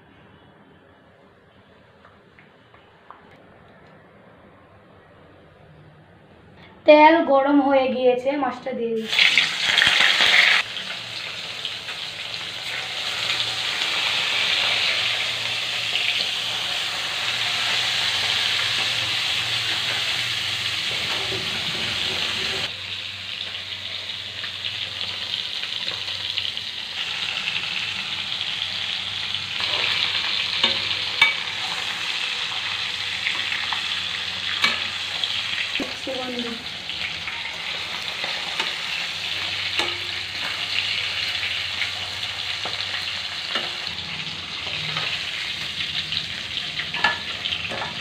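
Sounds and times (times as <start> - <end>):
fish sizzling in hot oil: 9.0 - 48.0.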